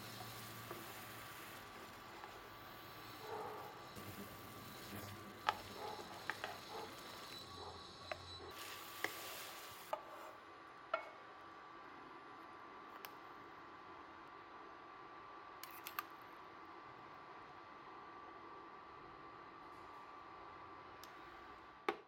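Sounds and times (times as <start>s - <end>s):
spatula stirring noodles in broth: 0.0s - 10.3s
low sizzle: 0.0s - 15.5s.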